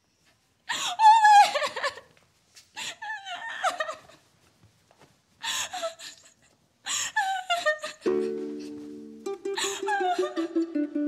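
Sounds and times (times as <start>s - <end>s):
woman wailing and sobbing: 0.7s - 2.1s, 2.9s - 4.1s, 7.0s - 8.6s, 9.3s - 11.0s.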